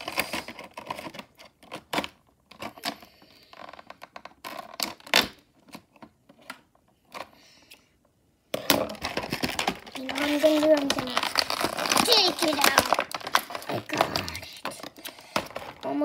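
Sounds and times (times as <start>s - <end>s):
plastic packaging crackling: 0.0s - 6.5s, 8.6s - 16.0s.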